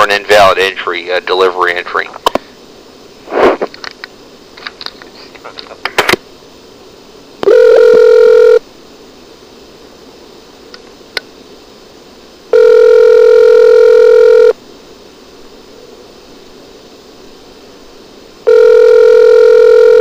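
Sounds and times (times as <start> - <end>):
telephone ringback tone: 7.4 - 8.6, 12.5 - 14.6, 18.5 - 20.0.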